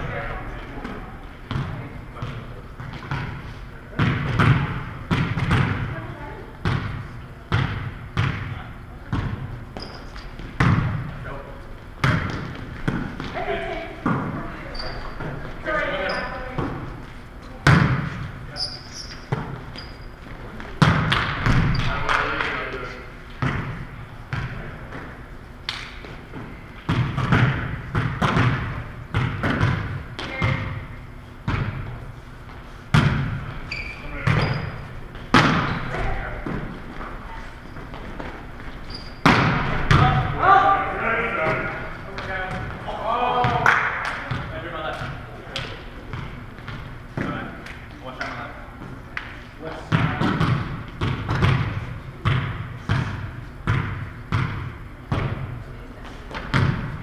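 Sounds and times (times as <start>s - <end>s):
volleyball thudding in a gym: 0.0s - 57.0s
volleyball smacks echoing: 1.0s - 6.0s, 12.0s - 13.4s, 20.6s - 22.7s, 26.8s - 31.9s, 32.9s - 33.5s, 35.2s - 36.7s, 39.2s - 40.4s, 49.2s - 55.6s.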